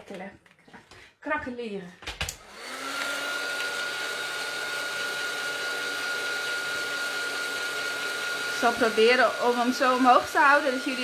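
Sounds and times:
heat tool fan whining: 2.4 - 11.0.

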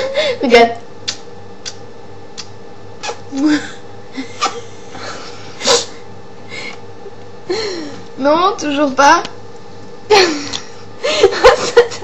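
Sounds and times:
faint steady hum: 0.0 - 12.0
lip smacks of blown kisses: 1.0 - 1.8, 2.4 - 3.4
breathy laughter: 10.1 - 12.0.

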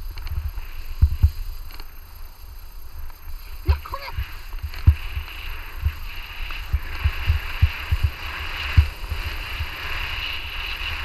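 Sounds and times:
skis gliding over snow: 0.0 - 11.0
dull low thumps: 6.7 - 9.0.

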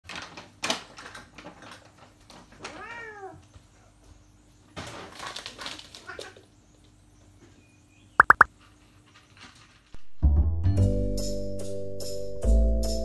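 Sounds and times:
cat meowing: 2.8 - 3.4.

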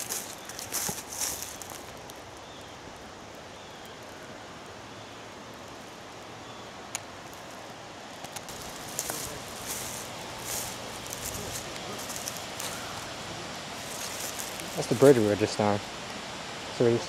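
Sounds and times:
rushing hiss: 0.0 - 2.2, 8.5 - 17.0.

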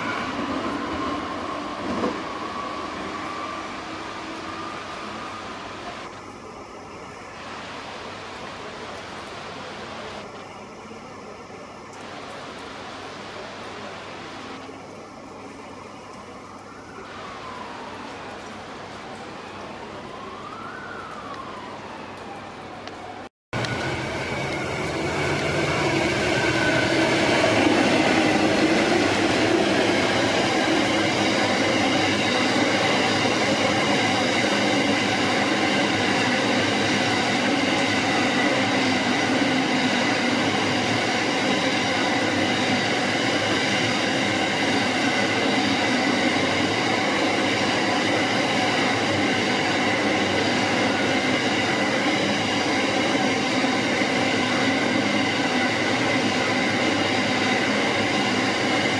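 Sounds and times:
freight train wheels rumbling on rails: 0.0 - 6.1, 23.6 - 58.9.

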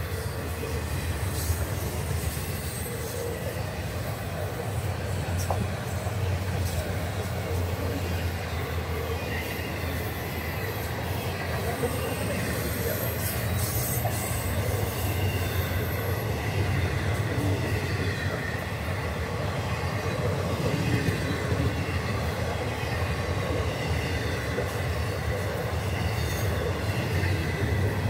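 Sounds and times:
train wheels rumbling on rail: 0.0 - 28.0
high wheel squeal: 7.8 - 18.7.

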